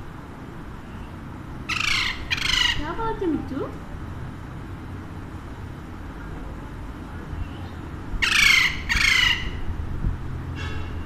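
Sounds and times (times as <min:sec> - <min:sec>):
parakeet squawking: 0:01.7 - 0:03.2, 0:07.5 - 0:09.7.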